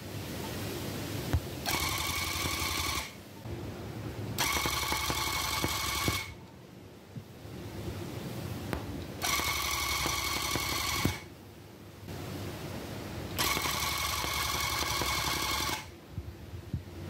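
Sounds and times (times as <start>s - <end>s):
tufting gun motor whine and rattle: 1.6s - 3.2s, 4.4s - 6.4s, 9.2s - 11.3s, 13.3s - 16.0s.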